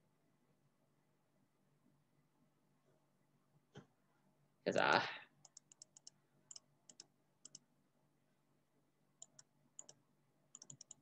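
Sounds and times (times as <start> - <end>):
faint computer clicking: 5.4 - 7.7, 9.2 - 11.0.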